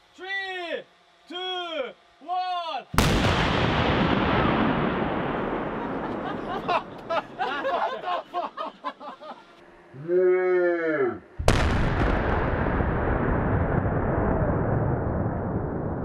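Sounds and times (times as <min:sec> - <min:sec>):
dynamite explosion with echo: 0:02.9 - 0:07.1, 0:11.4 - 0:16.0.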